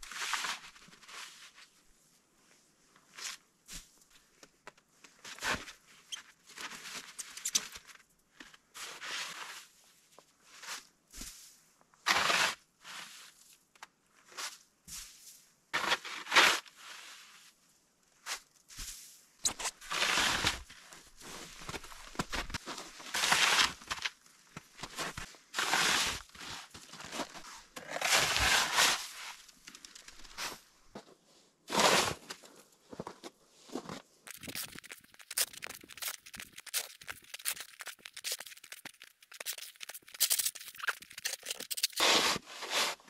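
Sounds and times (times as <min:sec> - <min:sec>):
shovel scraping snow: 0:19.5 - 0:20.6, 0:25.0 - 0:29.4, 0:31.7 - 0:32.2, 0:34.3 - 0:43.0.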